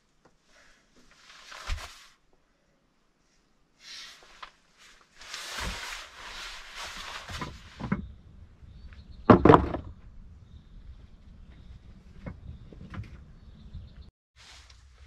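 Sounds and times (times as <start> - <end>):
rustling: 1.0 - 2.2, 3.9 - 8.2, 14.4 - 15.0
wooden door knocks: 9.3 - 10.0.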